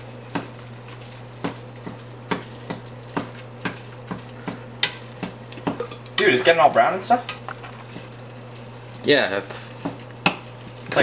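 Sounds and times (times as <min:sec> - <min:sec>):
meat sizzling: 0:00.0 - 0:11.0.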